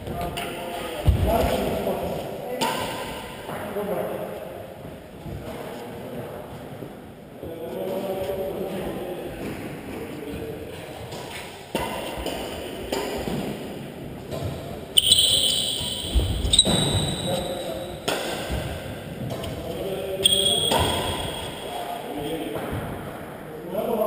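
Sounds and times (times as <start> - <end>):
racket hitting shuttlecock: 11.0 - 19.6, 20.2 - 21.8
shoes squeaking on court floor: 14.2 - 22.6
high squeal: 15.0 - 17.9, 20.2 - 21.8.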